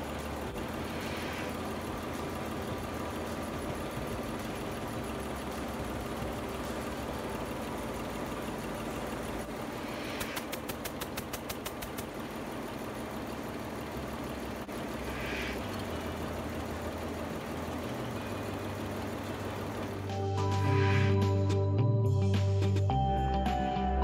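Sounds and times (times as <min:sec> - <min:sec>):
diesel generator running: 0:00.0 - 0:24.0
rapid sharp ticks: 0:10.0 - 0:12.2.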